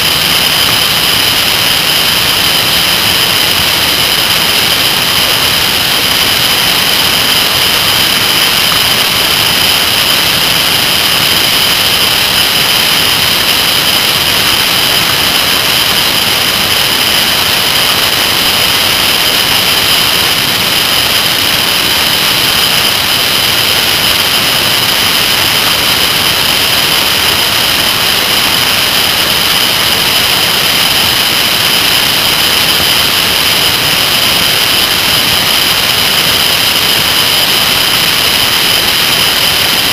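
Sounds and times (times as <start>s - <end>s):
high hiss: 0.0s - 39.9s.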